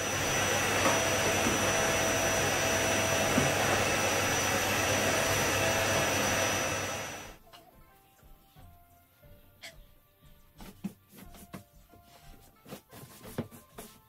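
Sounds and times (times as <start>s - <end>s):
vacuum cleaner running: 0.0s - 7.4s.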